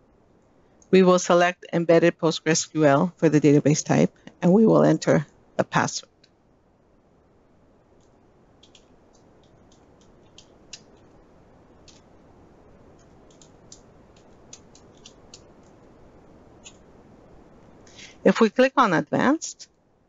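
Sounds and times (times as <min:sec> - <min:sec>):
low steady hiss: 0:00.0 - 0:20.0
computer keyboard keystrokes: 0:08.0 - 0:11.1, 0:13.0 - 0:15.8.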